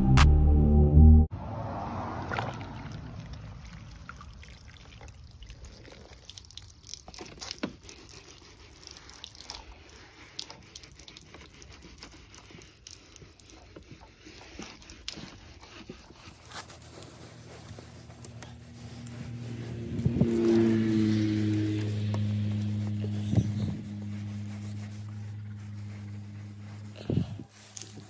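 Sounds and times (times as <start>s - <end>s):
small splashes: 1.8s - 15.7s
water dripping from towel: 2.3s - 15.3s.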